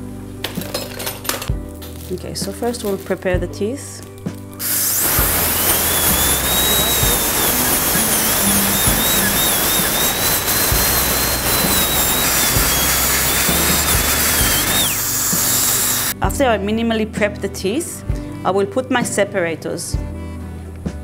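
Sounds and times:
dental drill whining: 0:04.6 - 0:16.2.

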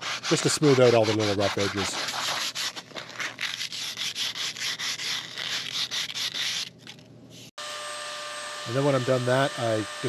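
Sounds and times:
sandpaper rubbing on wooden dowel: 0:00.0 - 0:07.0.

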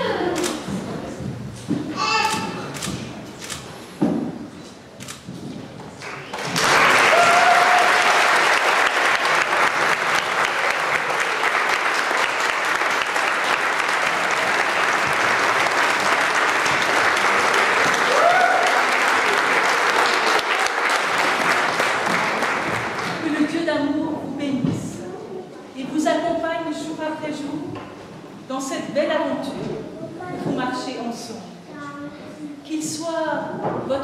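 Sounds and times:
guests applauding: 0:06.0 - 0:23.3
people cheering: 0:06.1 - 0:23.2.

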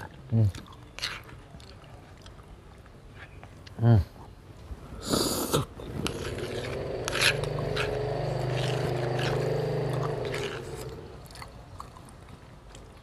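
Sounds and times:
vehicle engine running: 0:06.2 - 0:11.2.

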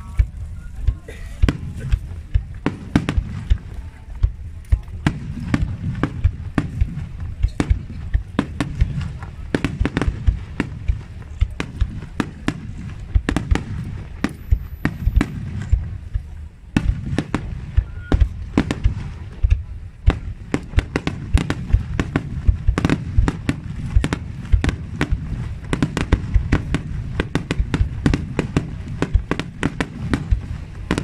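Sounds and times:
continuous low rumble: 0:00.0 - 0:31.0
fireworks bursting: 0:00.0 - 0:31.0.

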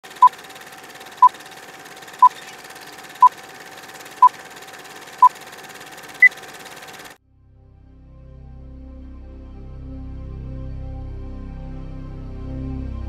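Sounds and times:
film projector rattling: 0:00.0 - 0:07.2.

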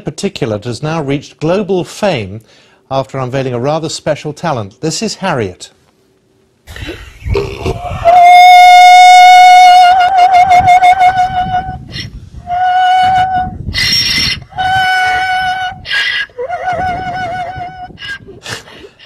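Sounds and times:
donkey braying: 0:07.3 - 0:19.0.

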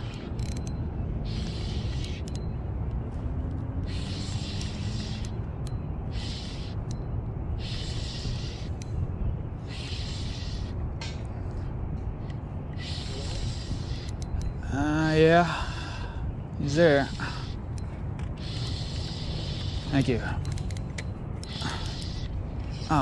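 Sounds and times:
hissing bursts: 0:03.9 - 0:05.4, 0:21.4 - 0:23.0.

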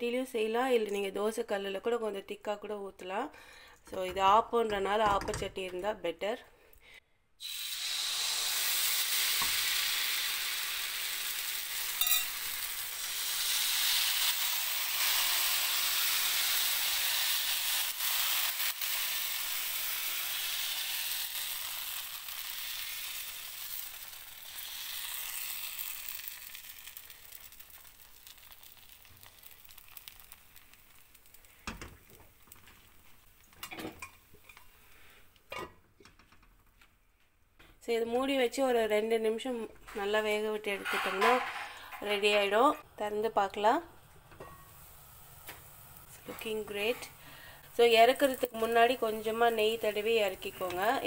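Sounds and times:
batter sizzling in a pan: 0:07.4 - 0:35.2, 0:44.0 - 0:51.0.

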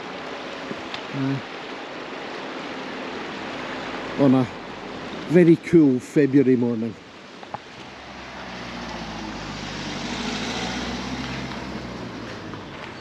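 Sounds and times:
vehicle driving past: 0:07.9 - 0:12.9.

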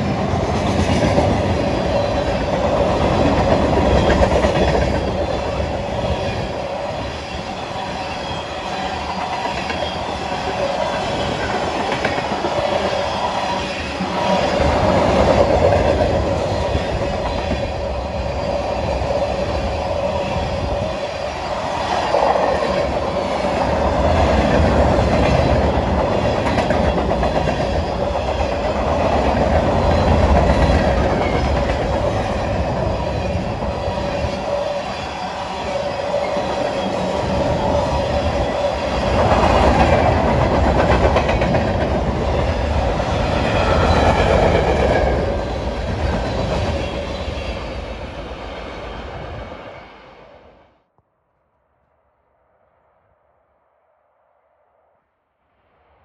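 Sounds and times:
train wheels clacking over rail joints: 0:39.1 - 0:45.2.

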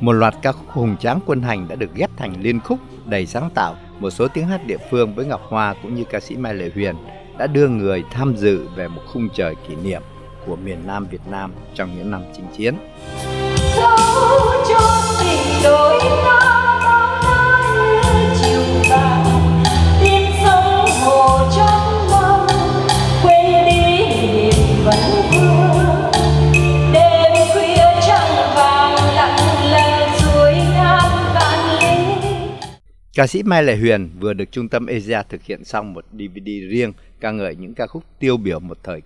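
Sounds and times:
woman singing into microphone: 0:13.5 - 0:32.6.

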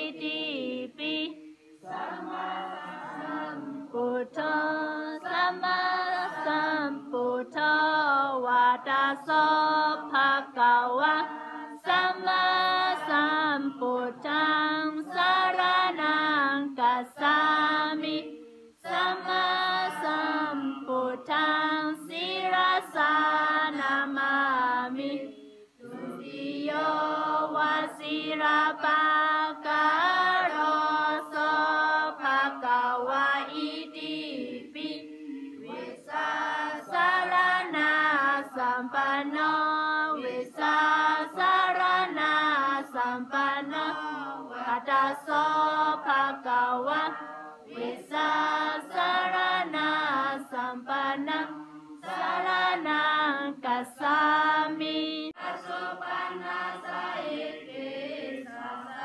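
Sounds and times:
group chanting prayer in unison: 0:00.0 - 0:59.0.

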